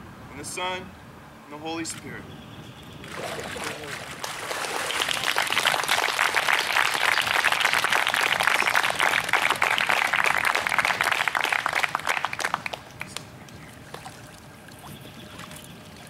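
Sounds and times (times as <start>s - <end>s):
crowd applauding: 3.1s - 13.3s.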